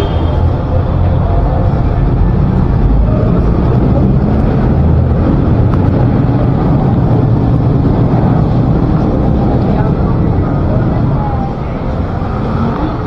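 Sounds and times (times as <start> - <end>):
loud low rumble: 0.0 - 13.0.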